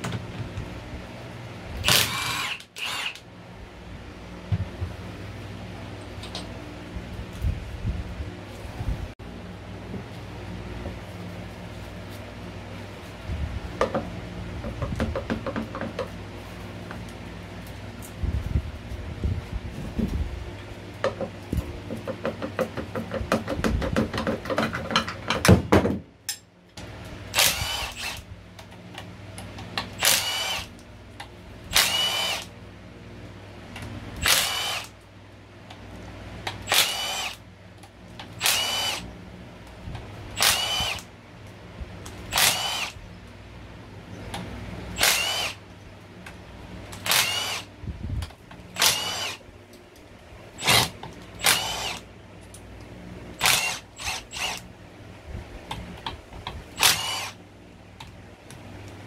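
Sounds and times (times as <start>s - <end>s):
power tool motor whine: 1.8s - 3.2s, 27.3s - 28.2s, 30.0s - 30.7s, 31.7s - 32.5s, 34.2s - 34.9s, 36.6s - 37.4s, 38.4s - 39.1s, 40.4s - 41.1s, 42.3s - 43.0s, 45.0s - 45.6s, 47.0s - 47.7s, 48.8s - 49.4s, 50.6s - 52.0s, 53.4s - 54.7s, 56.8s - 57.4s.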